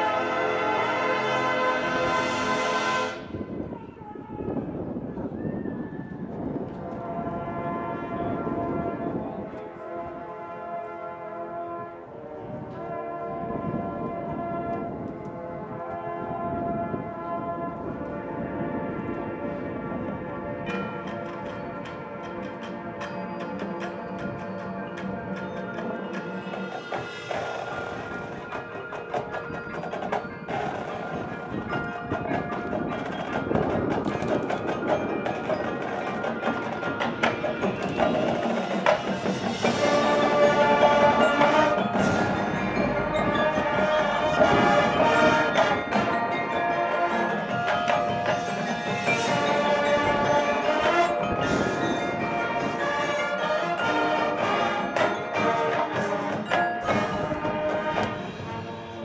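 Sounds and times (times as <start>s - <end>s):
marching band playing: 0.0s - 3.8s, 6.8s - 59.0s
mallet percussion: 20.7s - 59.0s.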